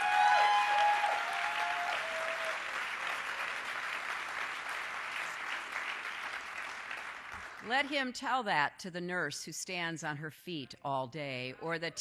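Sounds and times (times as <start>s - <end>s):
crowd cheering: 0.0s - 6.7s
audience applauding: 0.0s - 7.7s.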